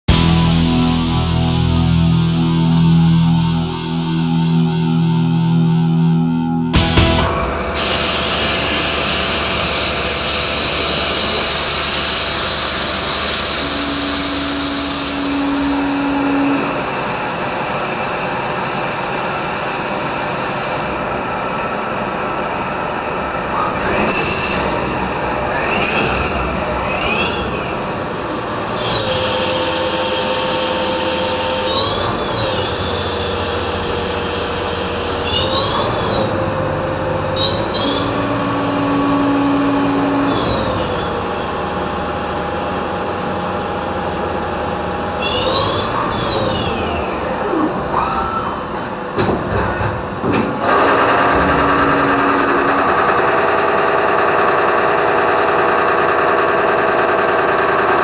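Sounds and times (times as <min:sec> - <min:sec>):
spindle whining: 0:06.8 - 0:18.2
lathe machine hum: 0:06.8 - 0:49.2, 0:50.0 - 0:58.0.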